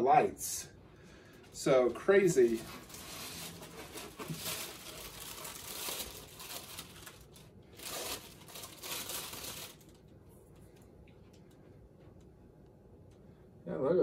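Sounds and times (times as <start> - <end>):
plastic bag crinkling and rustling: 1.4 - 10.8.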